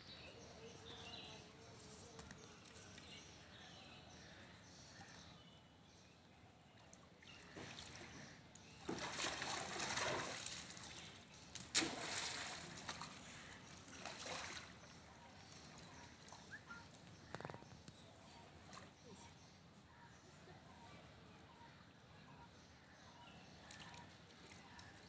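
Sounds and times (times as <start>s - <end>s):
water splashing and sloshing: 6.8s - 17.4s
sharp splash: 8.8s - 13.2s, 13.9s - 14.8s.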